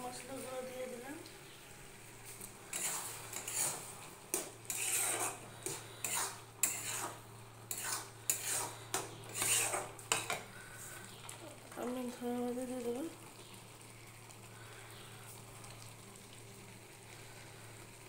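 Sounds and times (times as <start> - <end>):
spatula scraping a pan: 2.7 - 11.0.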